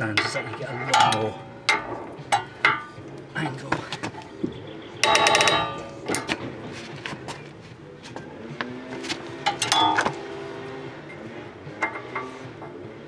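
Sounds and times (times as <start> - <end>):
metallic ticks and knocks: 0.0 - 4.3, 5.0 - 6.4, 9.4 - 10.2, 11.8 - 12.8.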